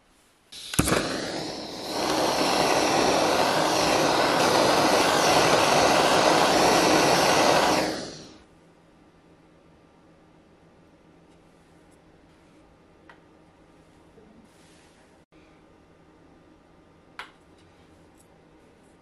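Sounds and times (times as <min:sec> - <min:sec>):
gas torch flame rushing: 0:00.5 - 0:08.4
gas torch lighting crack: 0:00.5 - 0:08.4.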